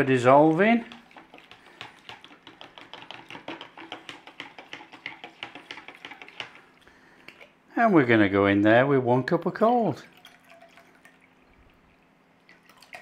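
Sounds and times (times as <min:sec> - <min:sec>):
metal spoon tapping plastic jug: 0:00.8 - 0:06.6.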